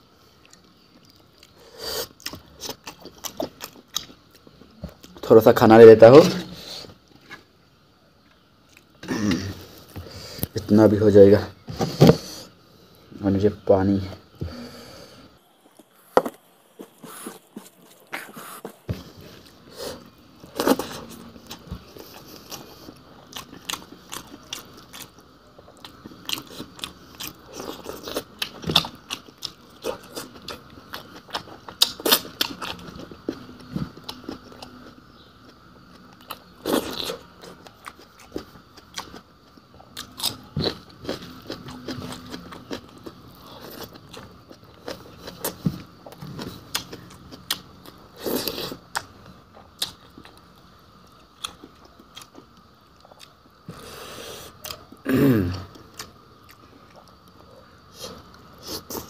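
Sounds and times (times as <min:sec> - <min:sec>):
close-up crunchy chewing: 0:00.3 - 0:05.3, 0:15.4 - 0:55.0.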